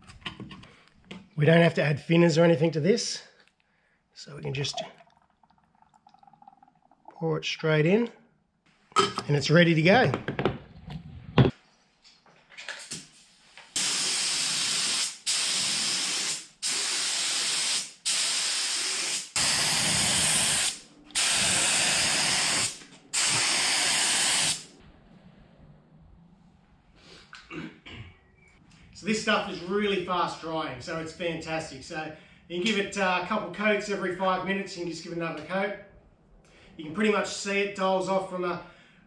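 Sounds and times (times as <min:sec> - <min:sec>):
spray gun hissing: 0:13.8 - 0:24.7.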